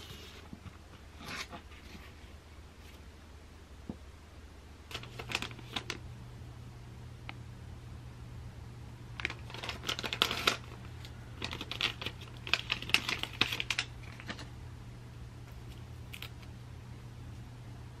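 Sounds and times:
paper sachet crinkling and rustling: 4.9s - 6.0s, 9.2s - 14.5s.

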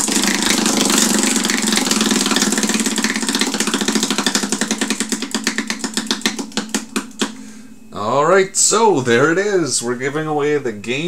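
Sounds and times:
prize wheel clicking: 0.0s - 7.3s.

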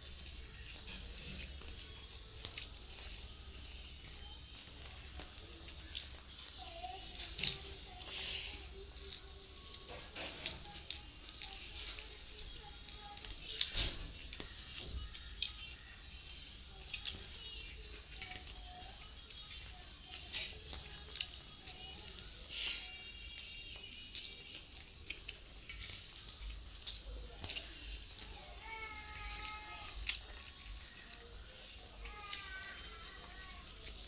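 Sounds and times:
wet chewing and mouth smacking: 0.1s - 6.6s, 23.3s - 28.2s.

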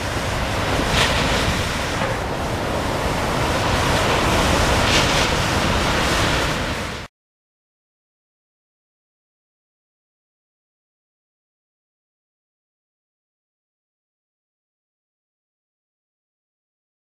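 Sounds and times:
ocean waves breaking: 0.0s - 7.1s.

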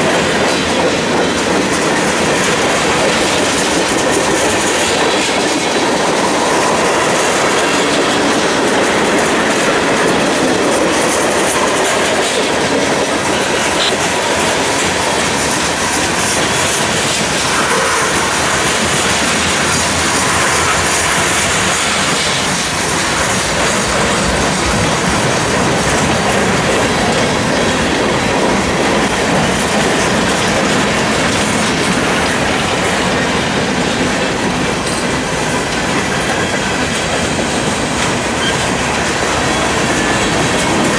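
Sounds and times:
train wheels rolling on rails: 0.0s - 40.9s.

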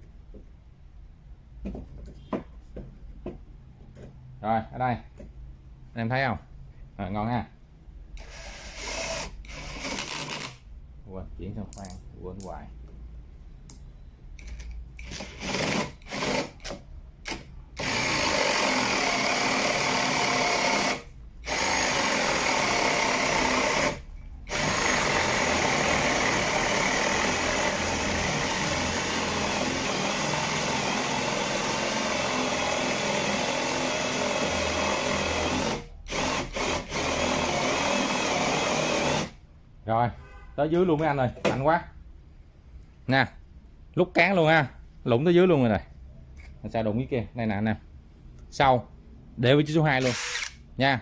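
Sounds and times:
cordless drill boring through wood: 8.2s - 10.6s, 14.5s - 39.4s, 50.0s - 50.6s.

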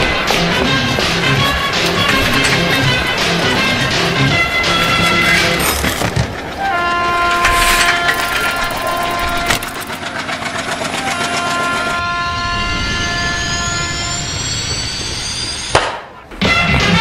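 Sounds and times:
rumbling rush: 0.7s - 10.8s.

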